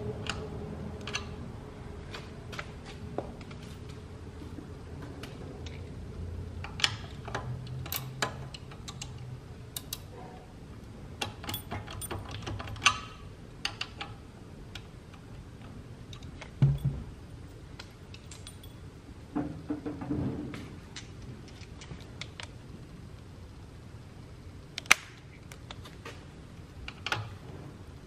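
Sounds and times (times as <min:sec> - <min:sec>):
light metallic clicks and clinks: 0:18.1 - 0:18.9.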